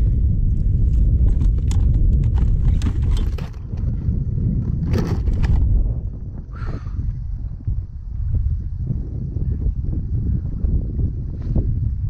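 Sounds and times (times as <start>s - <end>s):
wind buffeting microphone: 0.0s - 12.0s
knocks clicks and rattles on kayak: 0.5s - 5.8s.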